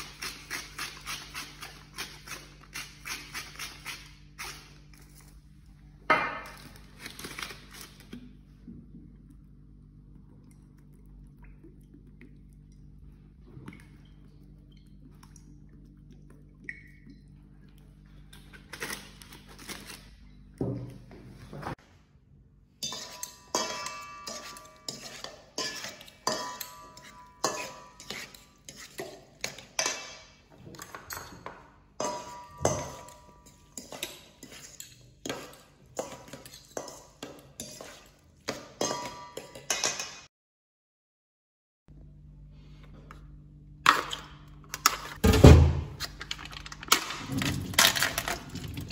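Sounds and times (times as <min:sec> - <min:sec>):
low steady hum: 0:00.0 - 0:28.7
metal utensil clinking on bowl: 0:22.8 - 0:40.3.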